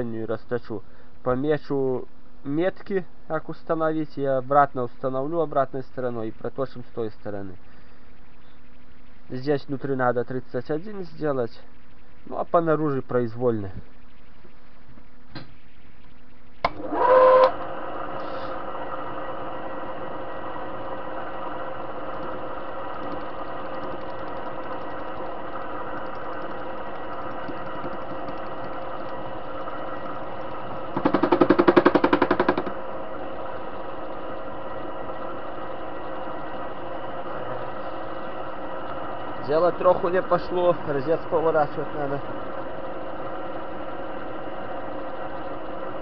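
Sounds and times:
lathe running with gear whine: 0:16.4 - 0:46.0
cutting tool rattling: 0:30.9 - 0:32.7.

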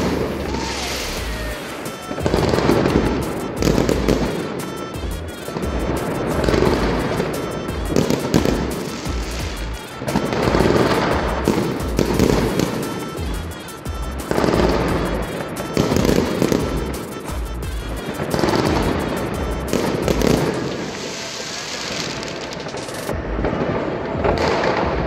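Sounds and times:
background music: 0:00.0 - 0:22.1
fireworks crackling and banging: 0:00.0 - 0:25.0.

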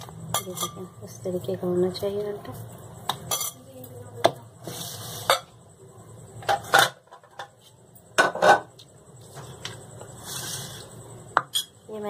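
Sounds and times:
plates and glass bowls clinking: 0:00.3 - 0:01.0, 0:03.2 - 0:03.7, 0:05.1 - 0:05.6, 0:06.4 - 0:07.6, 0:08.2 - 0:08.7, 0:11.4 - 0:11.8.

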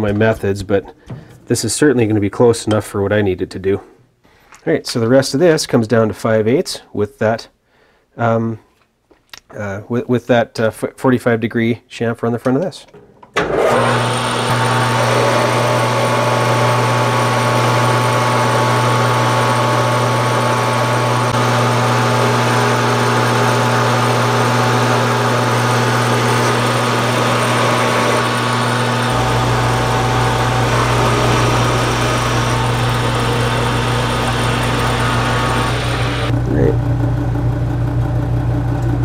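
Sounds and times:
lathe motor and gear hum: 0:13.4 - 0:39.0
deeper hum: 0:15.5 - 0:39.0.

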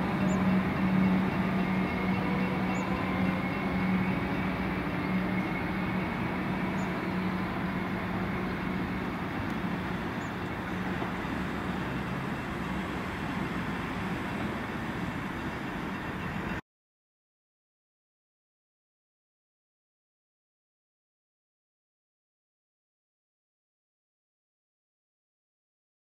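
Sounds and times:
electric train hum and rolling: 0:00.0 - 0:16.6.

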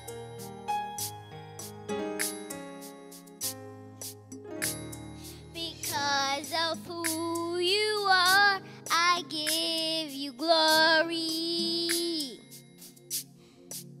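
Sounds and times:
backing track music: 0:00.0 - 0:14.0
girl singing into a microphone: 0:05.5 - 0:12.5.

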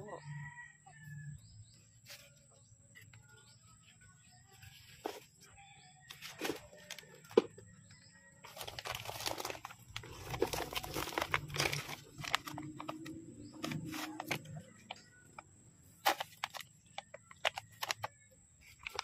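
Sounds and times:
plant leaves crinkling and rustling: 0:08.4 - 0:15.1, 0:16.0 - 0:19.0.

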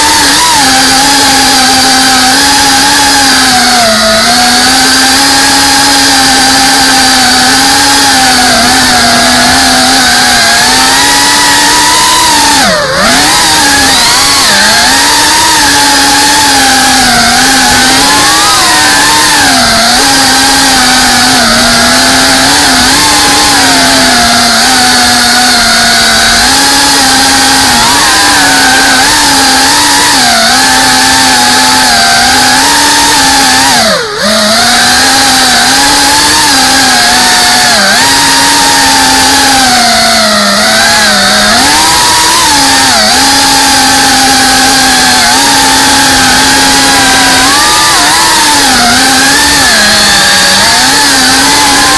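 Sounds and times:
drone motors and propellers whining: 0:00.0 - 0:51.9.

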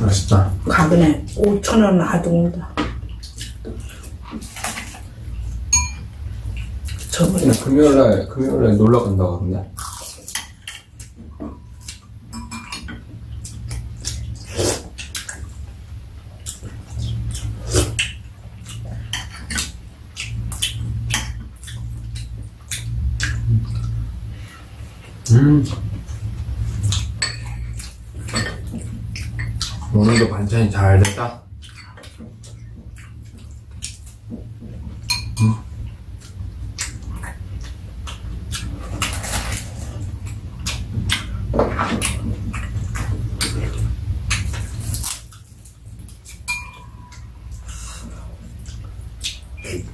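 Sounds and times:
steady low hum: 0:00.0 - 0:49.9
ringing clinks: 0:05.7 - 0:06.1
spoons clinking on ceramic bowls: 0:05.8 - 0:06.1, 0:35.1 - 0:35.6, 0:46.5 - 0:46.9.

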